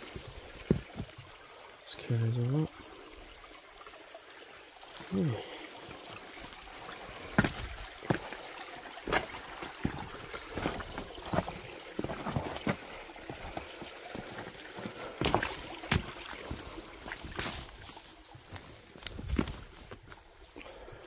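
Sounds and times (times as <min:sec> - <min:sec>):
footsteps through undergrowth: 0:00.0 - 0:01.2, 0:05.9 - 0:20.6
creek trickling: 0:00.0 - 0:21.0
twigs snapping: 0:17.1 - 0:20.2.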